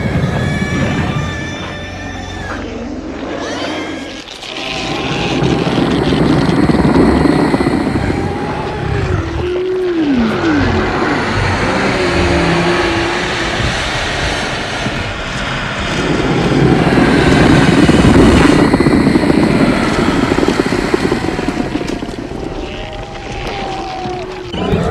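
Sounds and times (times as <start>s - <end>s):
monster growl: 4.4s - 13.6s
monster cries: 7.8s - 13.3s, 19.6s - 24.9s.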